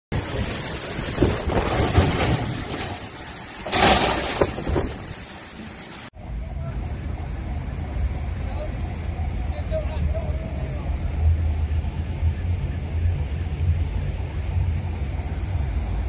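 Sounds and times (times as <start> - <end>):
wind buffeting microphone: 0.1 - 5.5, 6.2 - 16.0
heavy driving rain: 0.1 - 16.0
steady low rumble: 6.1 - 16.0.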